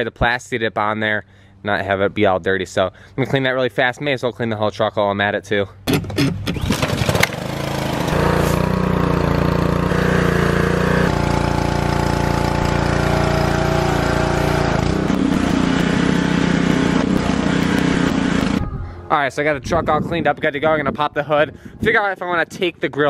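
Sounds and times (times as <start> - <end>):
pressure washer engine running: 6.7 - 18.6.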